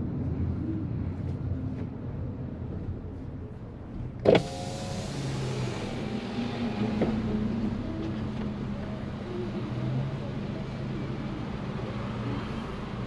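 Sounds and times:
electric car window lowering: 4.2 - 7.5
road noise hiss: 4.2 - 13.0.

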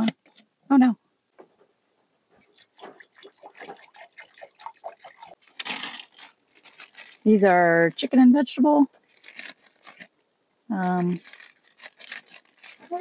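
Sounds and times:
water pouring into metal pot: 2.4 - 6.2.

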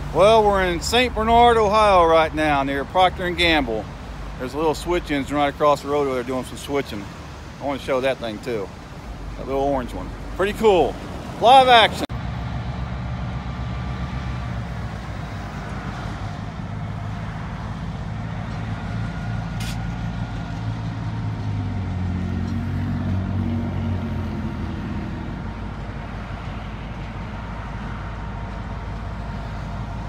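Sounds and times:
locomotive diesel engine drone: 8.0 - 30.0.

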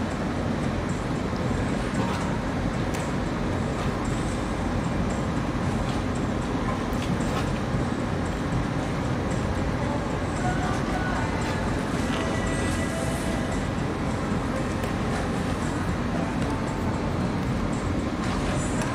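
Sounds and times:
distant machinery and traffic: 0.0 - 18.9.

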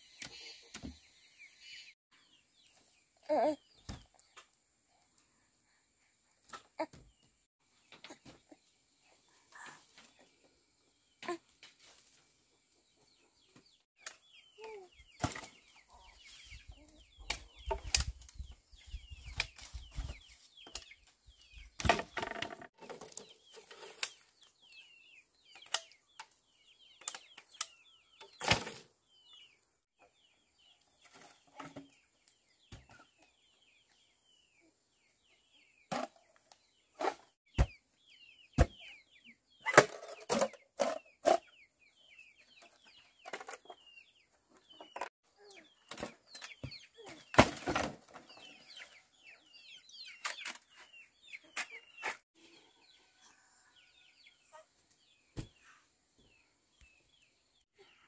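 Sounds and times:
birds chirping: 12.6 - 58.0.

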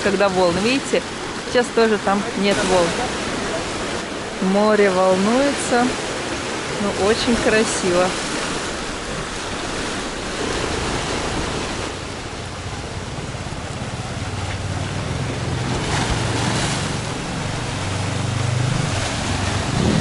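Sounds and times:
waves breaking over rocks: 0.0 - 20.0
wind on microphone: 5.8 - 20.0
low engine hum: 8.7 - 20.0.

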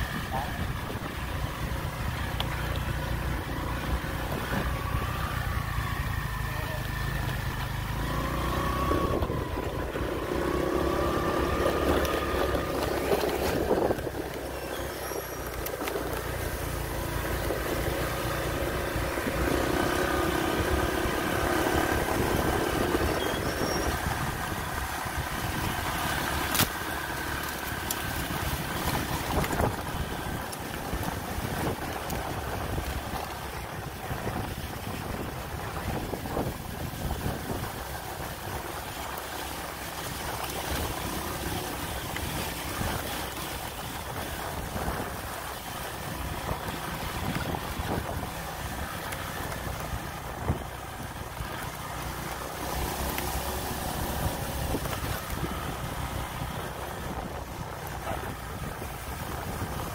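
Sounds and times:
motorbike engine running: 0.0 - 59.9.

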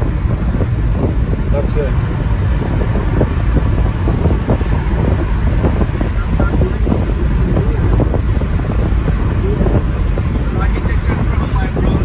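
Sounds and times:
car road and wind noise: 0.0 - 12.0
heavy low rumble: 0.0 - 12.0.

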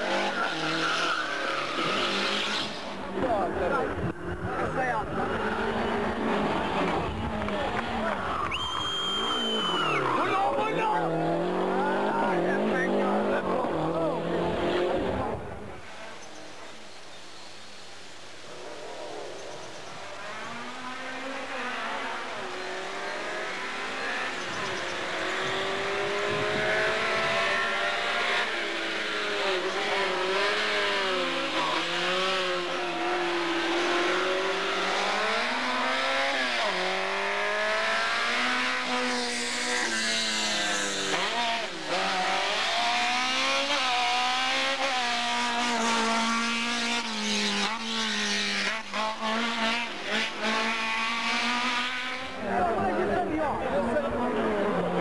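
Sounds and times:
race car engine revving: 0.0 - 15.8, 18.5 - 55.0
tyre squeal: 0.2 - 2.8, 8.2 - 10.4.

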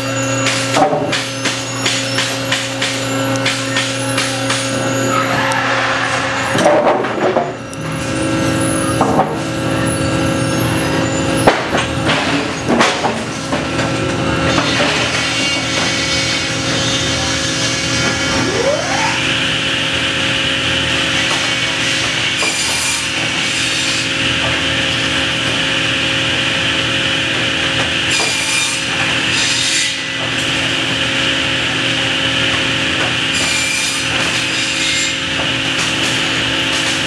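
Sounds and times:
machine hum: 16.1 - 21.6
rising whine: 17.2 - 20.9.

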